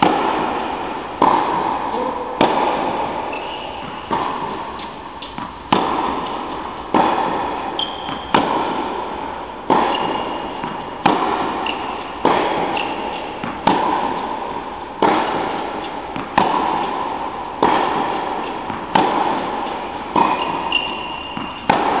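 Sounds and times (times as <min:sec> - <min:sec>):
tennis ball struck by rackets: 0:00.0 - 0:22.0
shoe squeaks: 0:03.3 - 0:04.1, 0:07.8 - 0:08.3, 0:09.9 - 0:10.6, 0:11.6 - 0:12.1, 0:12.8 - 0:13.3, 0:20.3 - 0:21.7.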